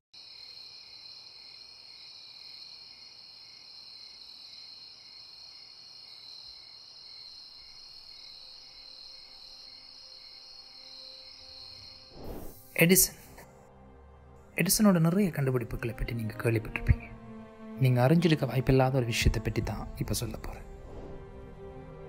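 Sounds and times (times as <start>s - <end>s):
crickets chirping: 0.2s - 13.1s.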